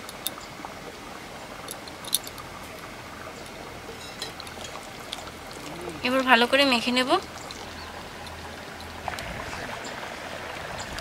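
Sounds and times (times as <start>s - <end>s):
oil pouring: 0.0s - 11.0s.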